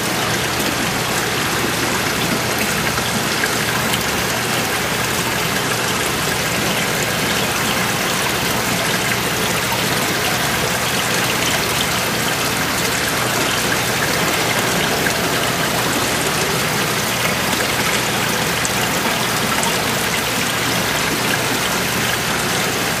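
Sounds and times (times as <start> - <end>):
fish tank water trickling: 0.0 - 23.0.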